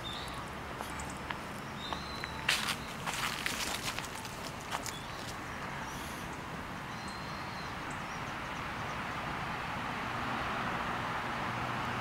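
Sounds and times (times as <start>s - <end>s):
road traffic hiss: 0.0s - 12.0s
car passing: 7.8s - 12.0s.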